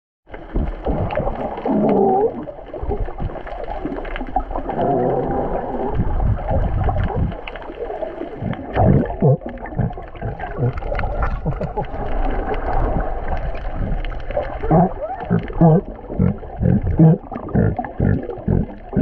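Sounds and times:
underwater clicks: 0:00.3 - 0:19.0
water noise: 0:00.3 - 0:19.0
sea lions calling underwater: 0:00.5 - 0:03.1, 0:04.6 - 0:19.0.

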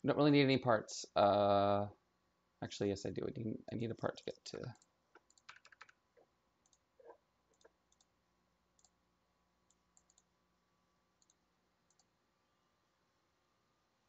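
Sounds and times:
computer mouse clicks: 0:04.8 - 0:06.0, 0:06.6 - 0:08.1, 0:08.8 - 0:09.0, 0:09.7 - 0:10.3, 0:11.2 - 0:12.1.

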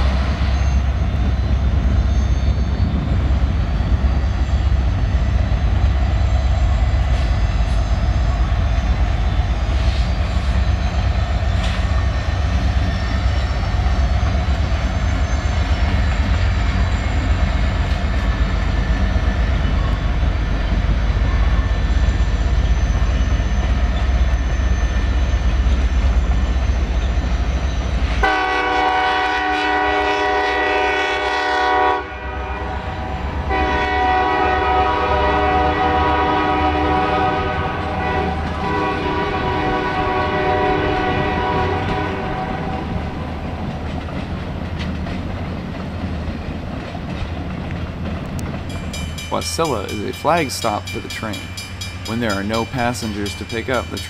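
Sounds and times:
train rumbling past: 0:00.0 - 0:54.0
locomotive air horn: 0:28.2 - 0:42.9.

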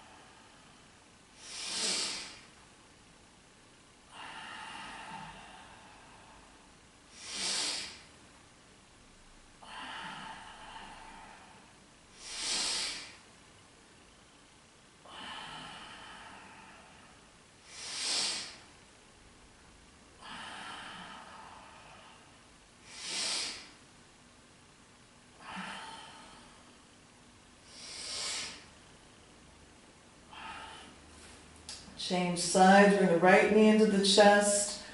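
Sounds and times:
woman breathing through the nose: 0:00.0 - 0:02.6, 0:04.1 - 0:08.2, 0:09.6 - 0:13.3, 0:15.0 - 0:18.8, 0:20.2 - 0:23.8, 0:25.4 - 0:26.9, 0:27.6 - 0:28.9, 0:30.3 - 0:31.4.

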